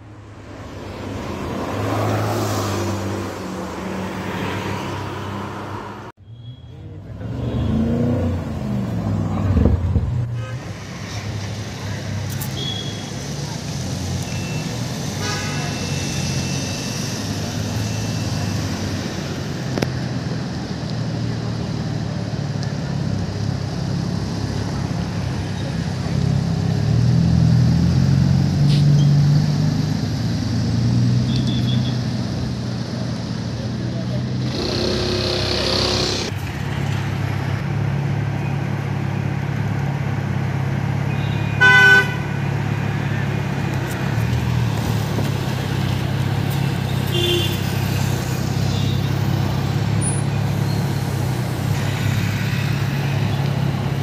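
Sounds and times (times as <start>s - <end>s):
car engines in traffic: 0.0s - 54.0s
road noise: 0.0s - 54.0s
car engine idling: 34.4s - 36.4s
car horn blast: 41.6s - 42.2s.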